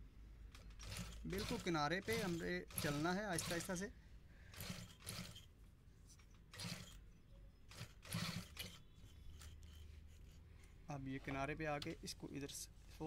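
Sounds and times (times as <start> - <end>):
sewing machine stitching: 0.5 - 3.9, 4.5 - 5.5, 6.5 - 7.0, 7.7 - 9.8.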